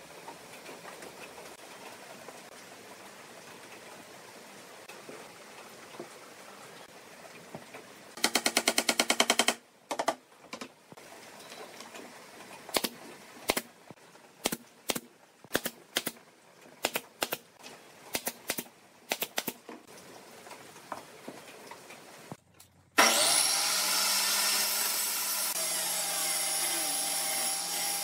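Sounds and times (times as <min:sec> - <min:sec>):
nail gun shots: 0:08.2 - 0:10.2, 0:12.7 - 0:13.7, 0:14.4 - 0:16.2, 0:16.8 - 0:17.4, 0:18.1 - 0:19.6
rapid nail gun rattle: 0:08.2 - 0:10.2.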